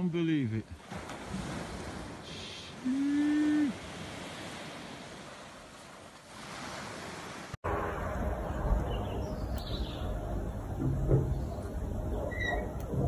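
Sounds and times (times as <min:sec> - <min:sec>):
waves breaking on beach: 0:00.6 - 0:07.6
loud low rumbling noise: 0:07.6 - 0:13.0.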